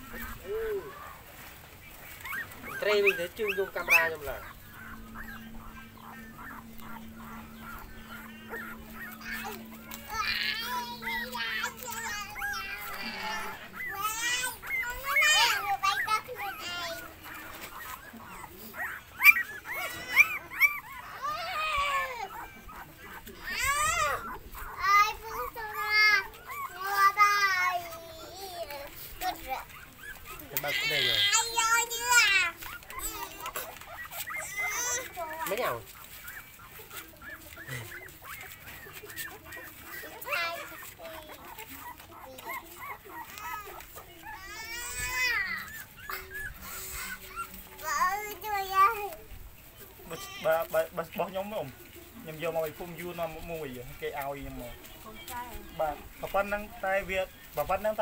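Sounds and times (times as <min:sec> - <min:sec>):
puppies whimpering: 0:00.0 - 0:58.0.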